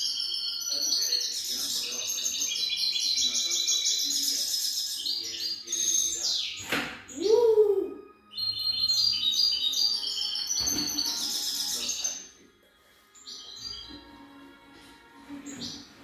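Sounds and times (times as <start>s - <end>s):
goldfinch twittering song: 0.0s - 7.5s, 8.2s - 12.3s, 13.2s - 14.1s.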